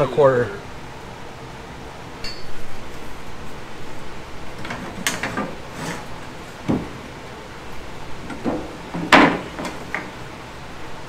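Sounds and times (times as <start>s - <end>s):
clattering knocks on boat deck: 6.6s - 7.0s, 8.3s - 10.1s
dull thump: 6.6s - 7.0s.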